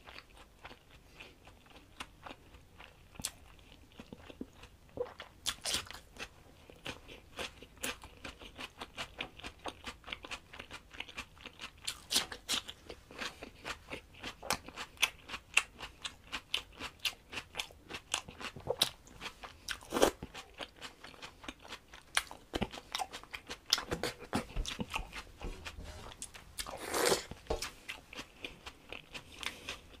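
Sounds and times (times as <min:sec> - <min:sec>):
cucumber crunching: 0:16.3 - 0:30.0
scraping: 0:25.4 - 0:27.6.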